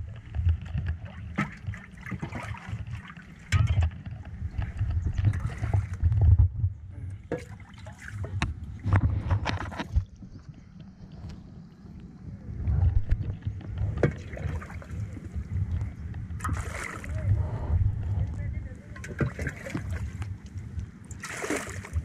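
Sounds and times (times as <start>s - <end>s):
water splashing around boat hull: 0.0s - 11.2s, 12.7s - 17.4s, 18.8s - 22.0s
low rumble: 3.6s - 7.3s, 8.2s - 21.1s.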